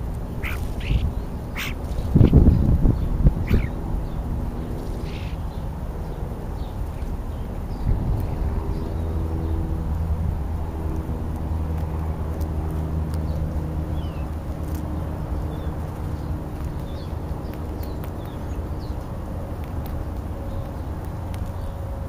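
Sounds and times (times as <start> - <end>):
vehicle engine humming: 0.0 - 22.0
faint bird chirps: 0.4 - 2.5, 3.4 - 3.8.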